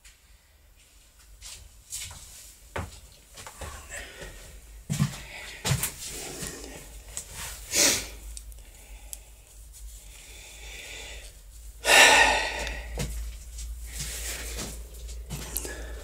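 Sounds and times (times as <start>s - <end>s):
low steady hum: 0.0s - 16.0s
person breathing close to microphone: 3.6s - 16.0s.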